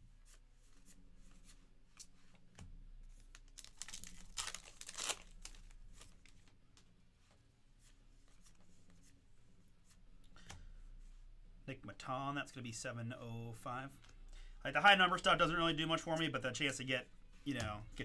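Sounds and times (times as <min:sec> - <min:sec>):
cards clicking and rustling: 0:03.2 - 0:06.9
wrapper tearing and crinkling: 0:03.3 - 0:06.2.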